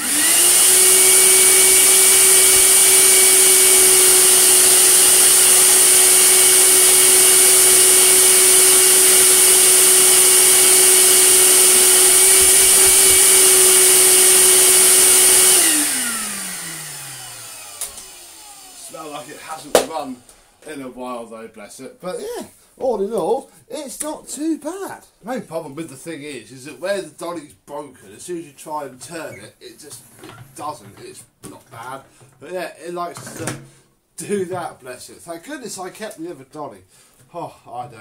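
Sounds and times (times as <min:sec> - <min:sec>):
vacuum cleaner running: 0:00.0 - 0:20.6
vacuum motor winding down: 0:00.0 - 0:20.6.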